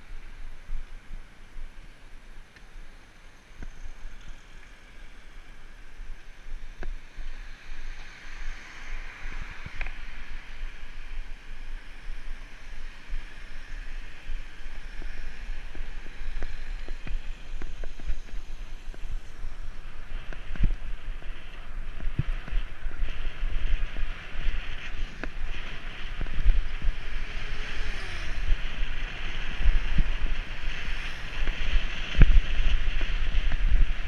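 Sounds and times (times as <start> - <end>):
wind and road noise: 0.0 - 34.0.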